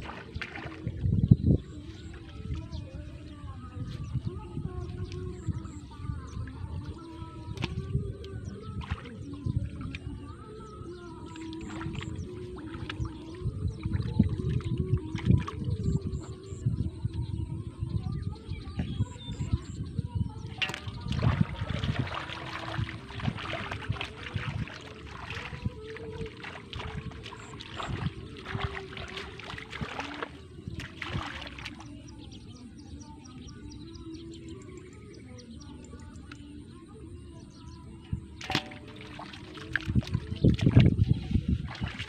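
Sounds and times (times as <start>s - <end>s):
hands splashing in shallow water: 0.0s - 1.0s, 20.4s - 32.0s, 38.4s - 42.0s
fish dropped into metal basin: 20.6s - 21.4s, 38.4s - 39.3s.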